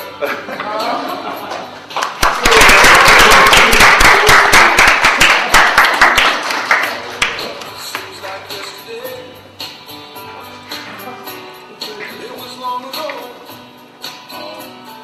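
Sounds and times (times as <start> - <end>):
audience applause: 1.9 - 7.5.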